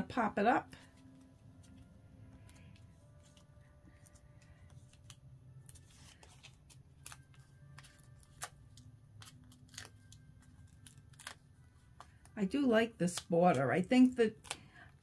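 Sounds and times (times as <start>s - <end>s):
paper rustling: 2.4s - 10.1s.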